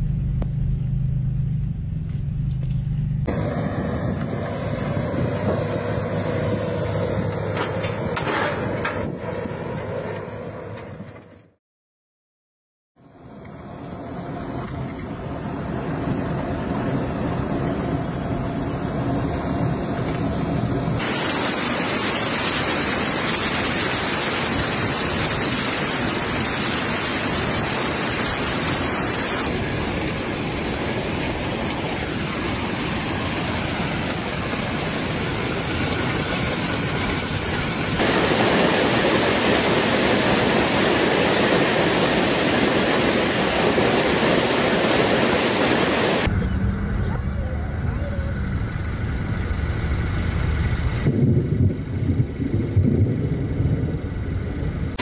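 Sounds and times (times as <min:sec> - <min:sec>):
rain: 0:13.1 - 0:46.3, 0:48.8 - 0:55.0
hail pelting down: 0:29.4 - 0:46.3.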